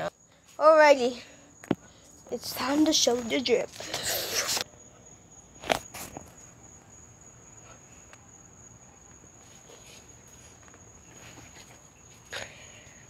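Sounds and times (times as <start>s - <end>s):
crickets trilling: 0.0s - 13.0s
rustles: 9.0s - 13.0s.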